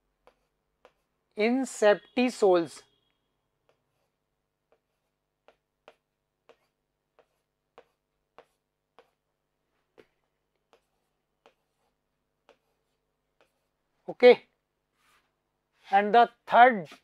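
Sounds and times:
marker tapping on whiteboard: 0.2s - 1.1s, 3.7s - 9.2s, 9.9s - 13.7s.

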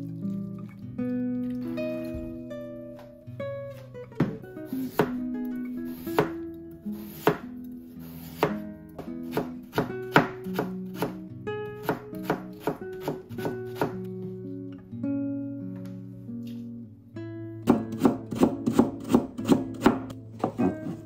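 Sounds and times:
acoustic guitar music: 0.0s - 21.0s
knife cutting potato on wooden board: 4.8s - 5.2s, 5.9s - 6.4s, 7.0s - 8.6s, 11.8s - 14.0s.

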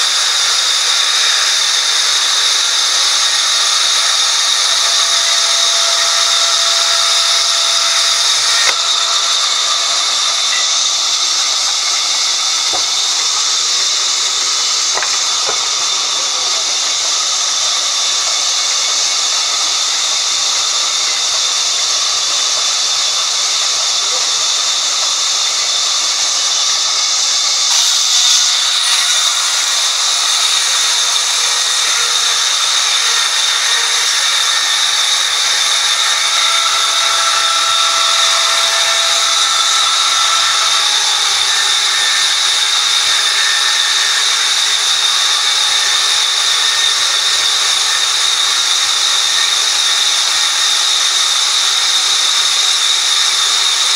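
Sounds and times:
band saw cutting through log: 0.0s - 53.9s.

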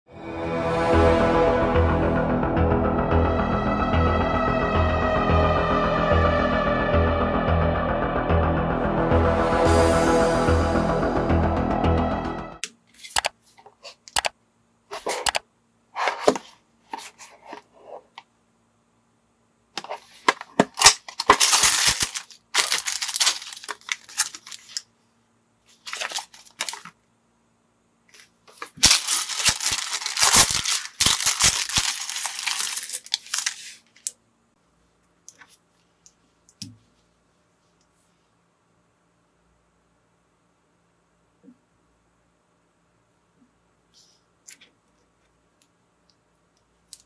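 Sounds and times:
packaging rustling and crinkling: 19.8s - 24.9s, 25.7s - 27.0s, 28.2s - 34.1s.

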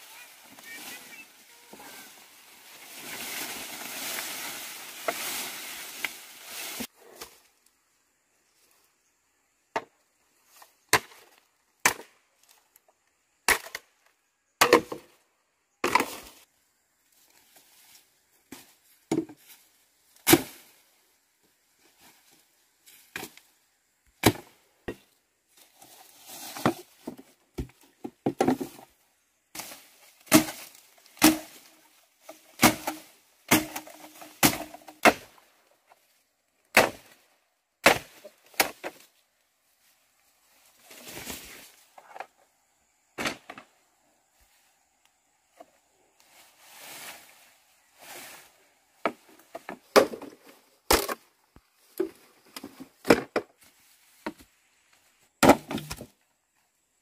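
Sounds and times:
chopping strikes on wood: 30.3s - 31.6s, 32.6s - 35.3s, 37.8s - 39.0s.

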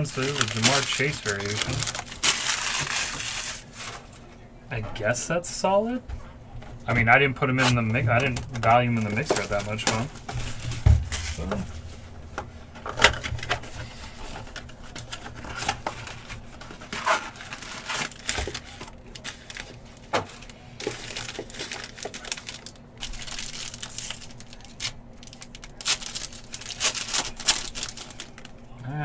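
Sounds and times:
pack tearing open: 0.0s - 3.8s, 15.2s - 28.5s
foil card packs crinkling: 0.0s - 4.3s, 7.5s - 11.9s, 12.8s - 28.8s.

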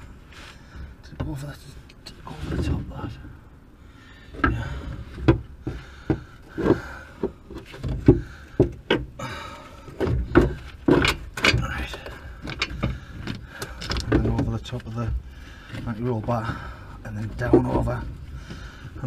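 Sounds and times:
metal parts knocking and clanking: 10.0s - 15.1s.

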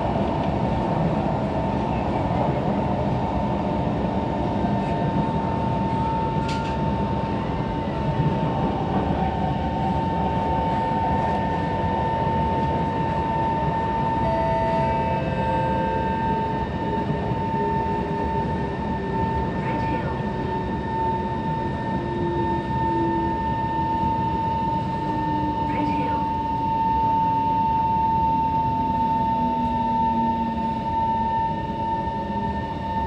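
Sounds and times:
train wheels rumbling on rails: 0.0s - 25.7s
traction motor whine: 10.0s - 33.0s.

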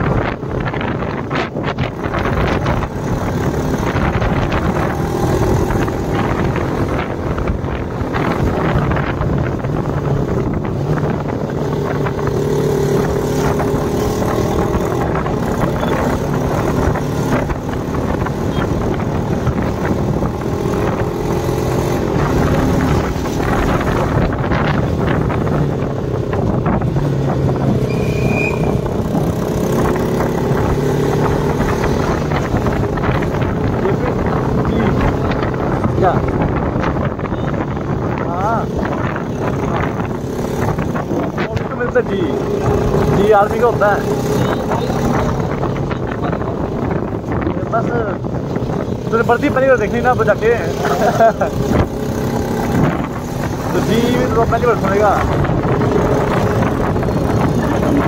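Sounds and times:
motorcycle engine running: 0.0s - 58.0s
wind noise: 0.0s - 58.0s
high beep: 27.9s - 28.7s.

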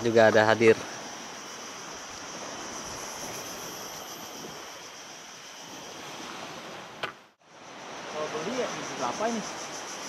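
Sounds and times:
high insect drone: 0.0s - 10.0s
sea surf rushing: 0.0s - 10.0s.

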